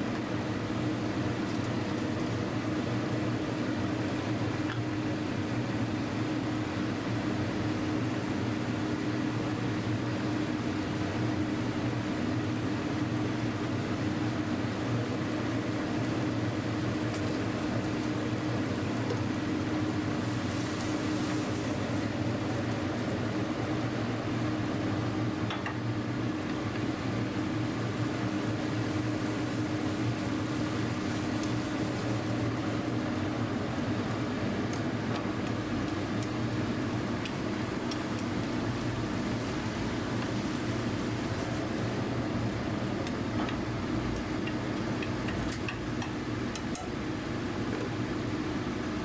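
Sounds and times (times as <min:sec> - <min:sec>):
kitchen equipment hum: 0:00.0 - 0:49.0
chopsticks clicking on frying pan: 0:43.0 - 0:47.0.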